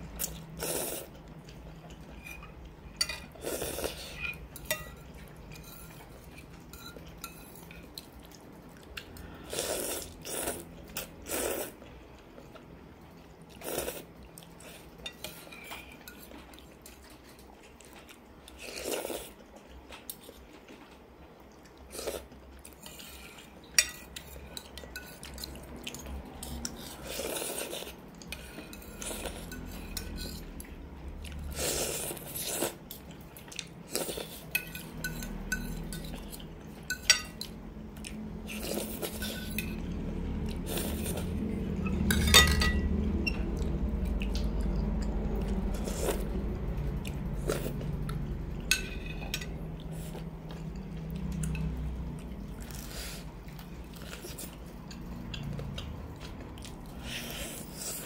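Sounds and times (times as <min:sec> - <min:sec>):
cutlery clinking on ceramic bowl: 0:02.2 - 0:03.3, 0:04.2 - 0:06.0, 0:36.8 - 0:37.5, 0:41.8 - 0:42.9.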